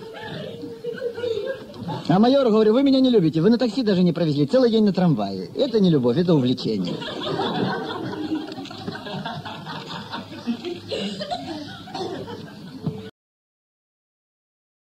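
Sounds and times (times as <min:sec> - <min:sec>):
audience laughter: 0:00.0 - 0:02.1, 0:06.8 - 0:13.0.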